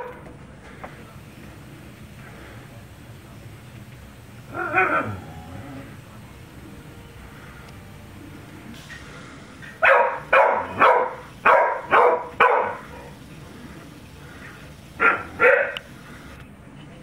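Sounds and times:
dog barking: 0:09.8 - 0:13.2, 0:15.0 - 0:15.9.

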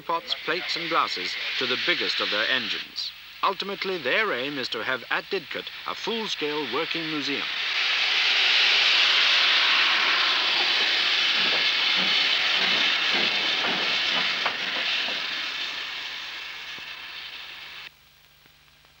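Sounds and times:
steam hissing: 0:00.0 - 0:17.9
steam locomotive chuffing: 0:00.0 - 0:17.9.

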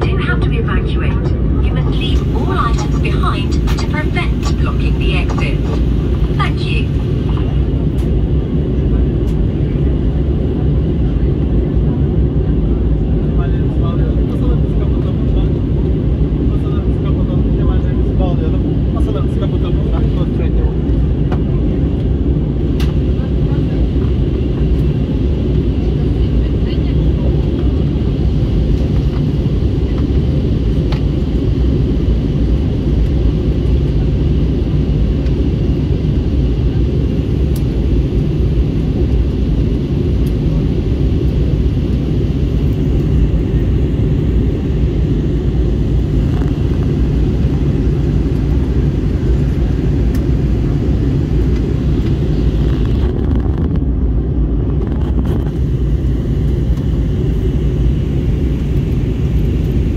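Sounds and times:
jet engine cabin drone: 0:00.0 - 0:59.9.

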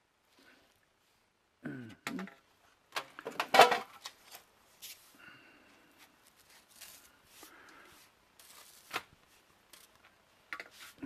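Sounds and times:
clicks scrapes and rustles: 0:06.0 - 0:11.0.

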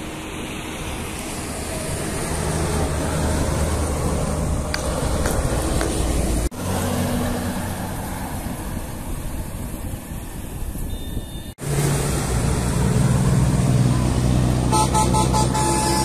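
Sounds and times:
bus engine pulling away: 0:00.0 - 0:10.2, 0:11.6 - 0:16.0
bus passing on a highway: 0:00.0 - 0:10.9, 0:11.5 - 0:16.0.

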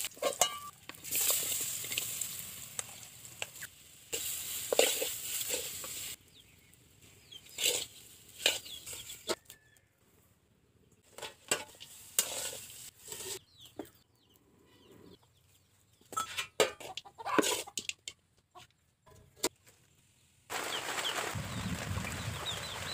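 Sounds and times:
chickens clucking: 0:13.2 - 0:18.8.

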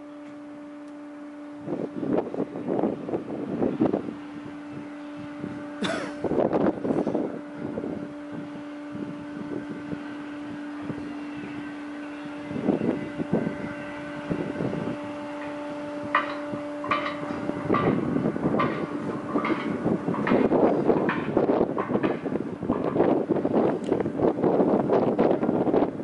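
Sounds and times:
machinery electric hum: 0:00.0 - 0:26.0
metallic clanks and rattles: 0:16.2 - 0:23.1.

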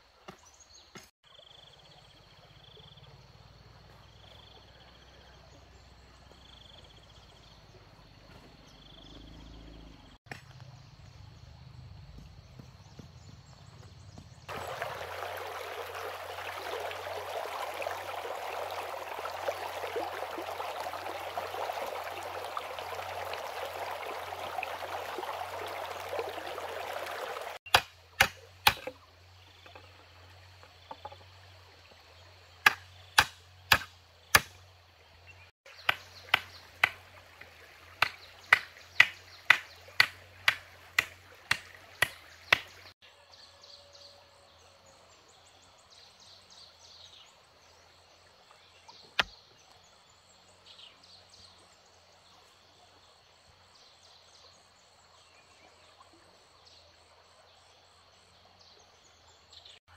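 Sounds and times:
hand tool striking wooden pole: 0:27.7 - 0:29.0, 0:32.6 - 0:34.6, 0:35.8 - 0:37.0, 0:38.0 - 0:42.7.

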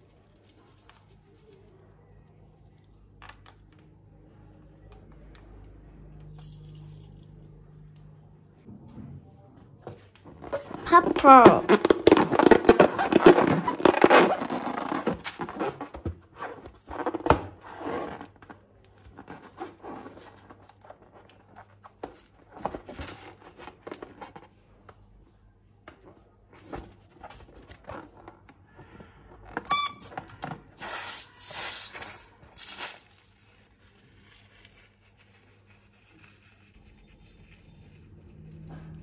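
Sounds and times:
balloon crackling: 0:10.3 - 0:18.4.

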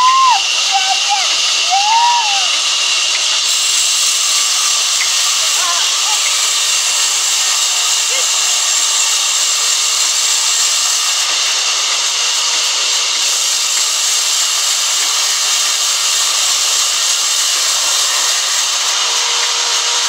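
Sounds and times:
band saw cutting a log: 0:00.0 - 0:20.0.

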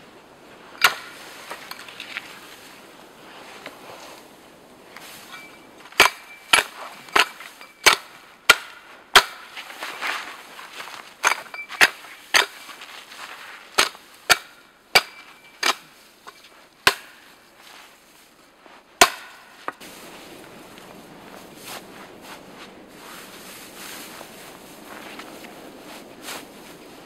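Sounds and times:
axe chopping twigs: 0:00.8 - 0:02.2, 0:05.8 - 0:09.8, 0:11.2 - 0:12.8, 0:13.7 - 0:17.4, 0:19.0 - 0:19.8.

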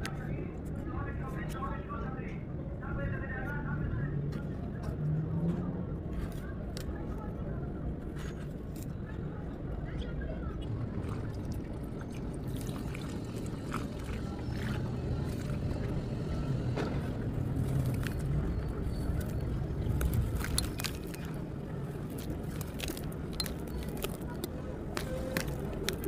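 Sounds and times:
steady low rumble: 0:00.0 - 0:26.0
grit crackling: 0:17.3 - 0:26.0
hands squeezing wet sand: 0:17.4 - 0:26.0.

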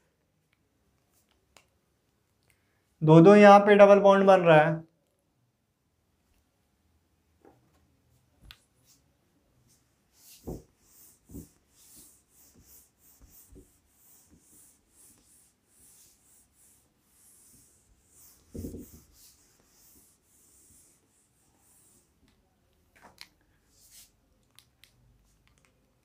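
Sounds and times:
duster rubbing whiteboard: 0:09.7 - 0:22.2.

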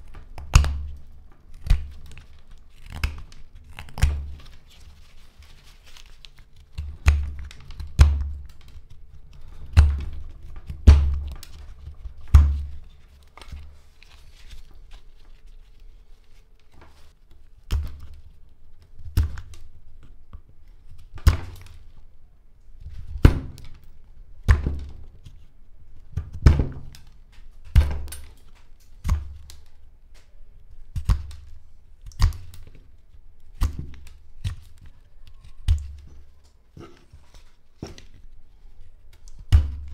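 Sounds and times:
knife carving hard wood: 0:00.0 - 0:04.4, 0:33.5 - 0:36.2.

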